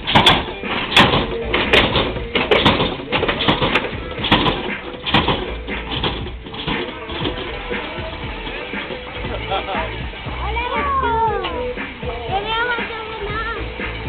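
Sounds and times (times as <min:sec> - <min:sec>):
car hydraulic suspension knocking: 0:00.0 - 0:09.0.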